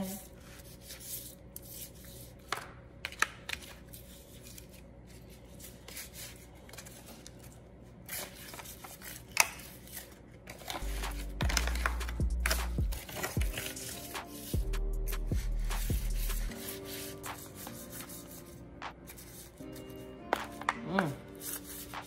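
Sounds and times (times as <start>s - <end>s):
background music with low bass: 10.8s - 22.0s.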